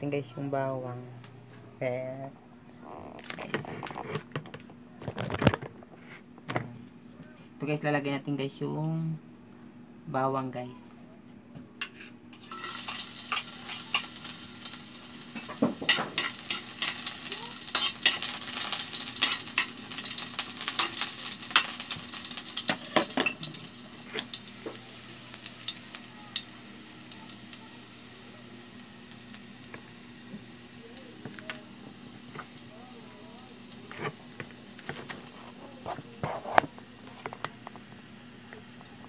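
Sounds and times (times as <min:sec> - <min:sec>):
garlic sizzling in hot oil: 0:12.3 - 0:35.4, 0:36.7 - 0:39.0.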